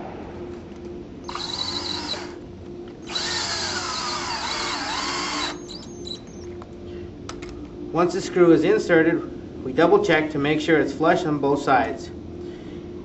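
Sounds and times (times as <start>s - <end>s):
power drill driving screw into wood: 1.3s - 2.4s, 3.1s - 6.2s.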